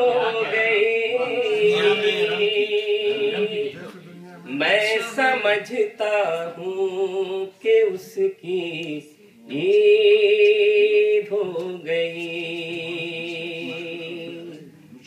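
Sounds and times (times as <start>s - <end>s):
man singing verse into microphone: 4.5s - 14.6s.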